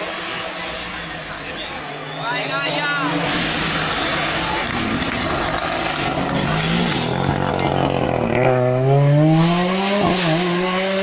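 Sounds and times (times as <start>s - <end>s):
rally car engine accelerating: 3.0s - 11.0s.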